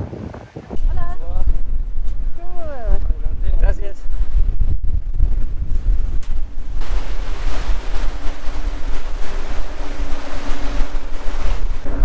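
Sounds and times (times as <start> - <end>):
wind buffeting microphone: 0.0 - 12.0
boat engine humming: 5.0 - 12.0.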